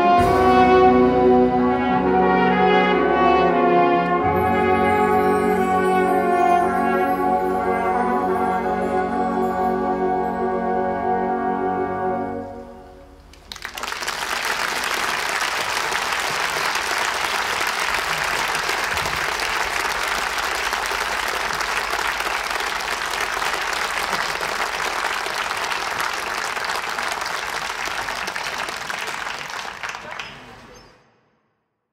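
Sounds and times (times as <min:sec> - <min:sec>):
audience applause: 0:13.3 - 0:30.8.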